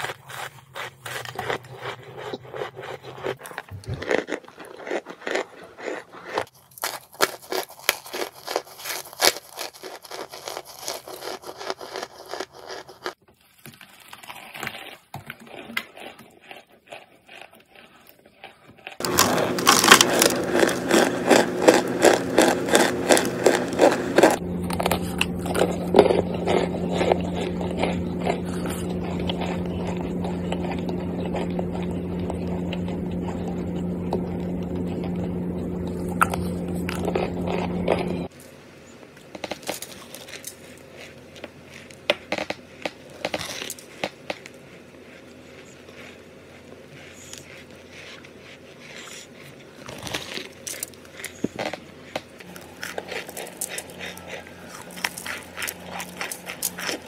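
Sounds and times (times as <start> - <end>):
crunching cornstarch chunks: 0.0 - 57.0
low hum: 19.0 - 48.7, 49.4 - 57.0.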